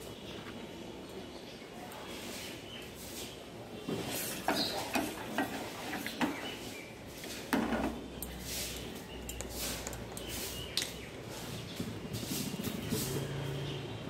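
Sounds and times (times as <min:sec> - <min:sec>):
ladle scraping a metal pot: 0:04.1 - 0:10.7.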